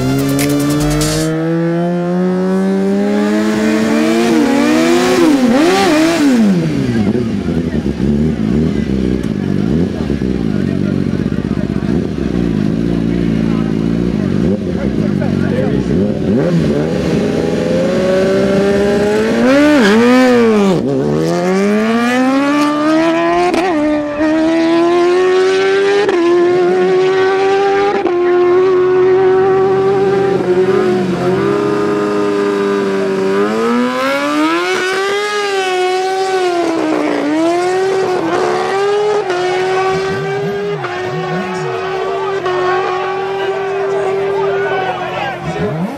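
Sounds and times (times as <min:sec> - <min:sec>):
motorcycle engine accelerating: 0:00.0 - 0:45.9.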